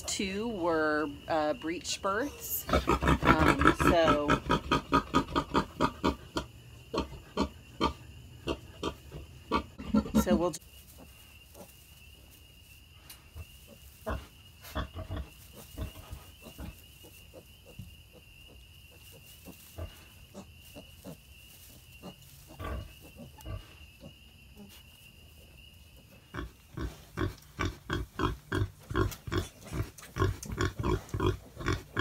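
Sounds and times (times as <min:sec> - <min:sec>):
pigs grunting: 0:02.4 - 0:10.6, 0:26.3 - 0:32.0.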